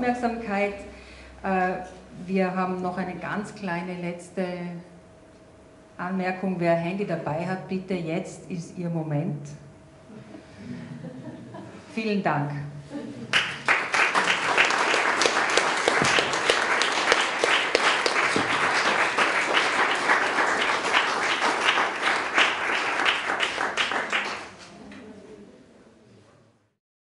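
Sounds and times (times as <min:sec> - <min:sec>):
audience applauding: 0:13.3 - 0:24.8.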